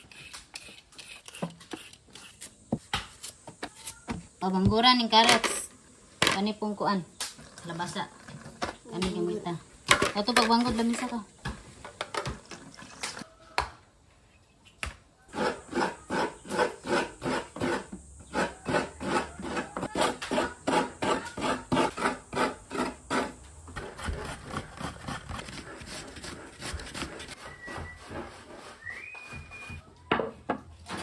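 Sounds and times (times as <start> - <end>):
coconut grater rasping: 15.3 - 29.0.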